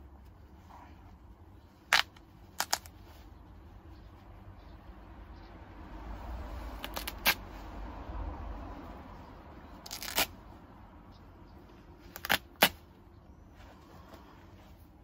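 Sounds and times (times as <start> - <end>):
fabric tearing: 1.7 - 3.2, 6.7 - 7.4, 9.8 - 10.4, 12.1 - 12.9.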